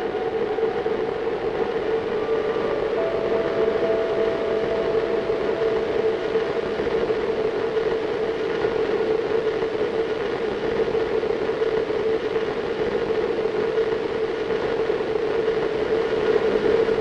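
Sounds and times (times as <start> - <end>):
low hum: 0.0 - 11.7.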